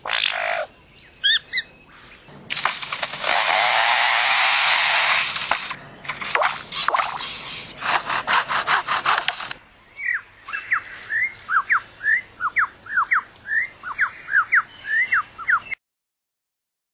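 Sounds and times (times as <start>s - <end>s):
bird mimicking a chainsaw: 2.5s - 9.6s
bird whistling: 10.0s - 15.8s.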